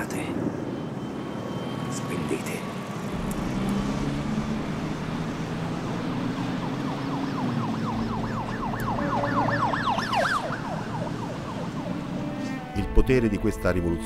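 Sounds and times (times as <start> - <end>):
low steady drone: 3.0 - 9.7
yelping siren-like tone: 4.7 - 12.8.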